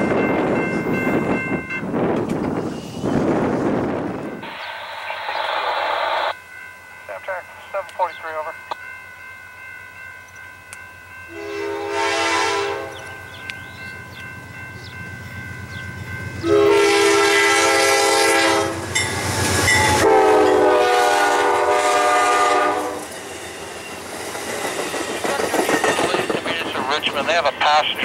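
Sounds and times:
train horn blasts: 11.3s - 13.4s, 16.4s - 19.0s, 19.7s - 23.2s.

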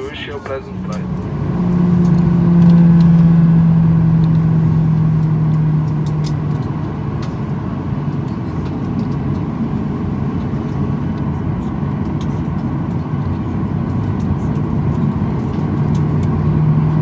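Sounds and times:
low hum: 0.0s - 12.7s
jet cabin rumble while taxiing: 0.0s - 17.0s.

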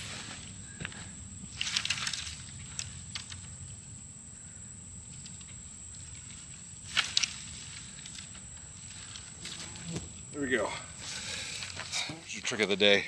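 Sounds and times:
firewood rustling and clattering: 0.0s - 4.0s, 5.0s - 13.0s.

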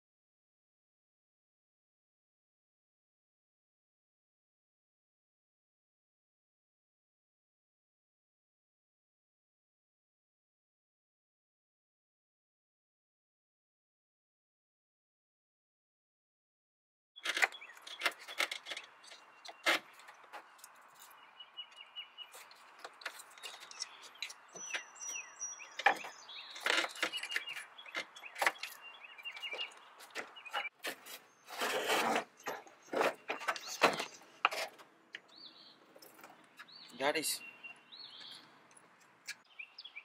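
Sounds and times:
plastic parts clunking and rattling: 17.2s - 20.7s, 22.3s - 24.9s, 25.8s - 35.3s
scraping rustle: 17.2s - 24.9s, 25.8s - 34.9s.

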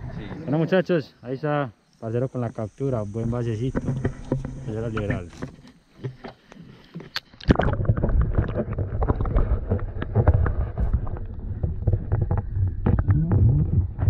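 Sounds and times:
muffled underwater rumble and gurgle: 7.4s - 14.0s.

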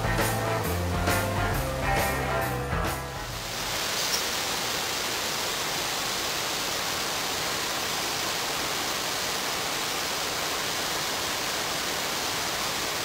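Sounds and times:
waterfall roaring: 3.2s - 13.0s.

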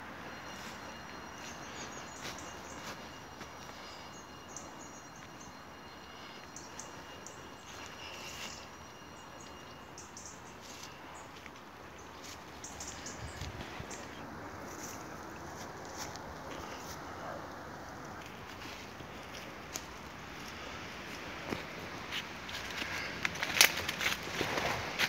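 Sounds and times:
faint high-pitched whine: 0.0s - 25.0s
footsteps crunching through dry leaves: 0.3s - 4.1s, 7.5s - 8.8s, 10.5s - 25.0s.

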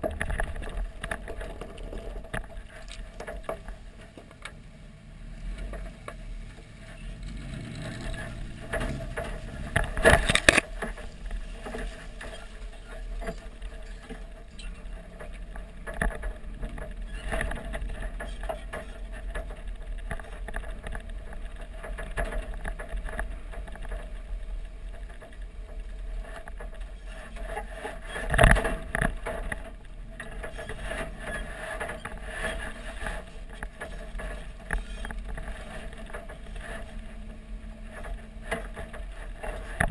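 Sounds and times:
truck rumbling over dirt track: 0.0s - 39.9s
truck thumping over bumps: 5.5s - 12.8s.

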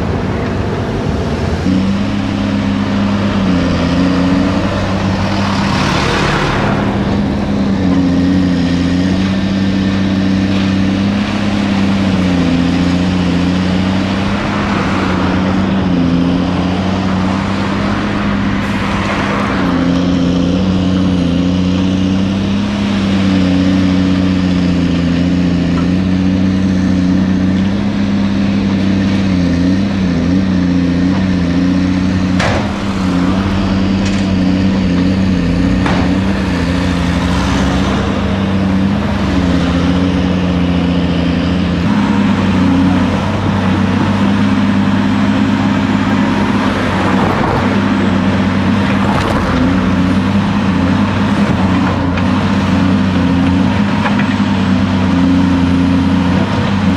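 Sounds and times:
diesel engine running: 0.0s - 56.9s
sharp knocks: 32.3s - 33.2s, 35.6s - 36.5s.

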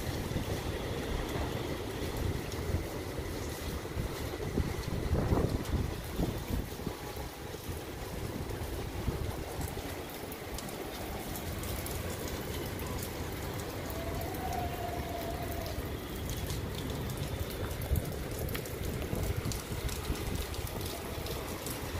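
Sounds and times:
gusty wind rumble: 0.0s - 9.8s, 17.4s - 21.9s
rain on concrete: 0.0s - 21.9s
raindrop ticks: 0.0s - 21.9s.

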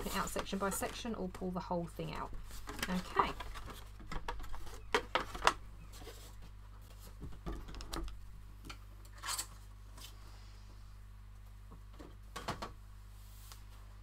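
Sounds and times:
cardstock rustling: 0.0s - 1.5s.

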